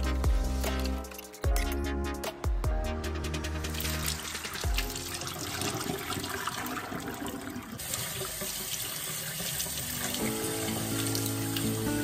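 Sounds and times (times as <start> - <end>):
water pouring through a strainer: 3.7 - 12.0
tap water running over peas: 3.8 - 12.0.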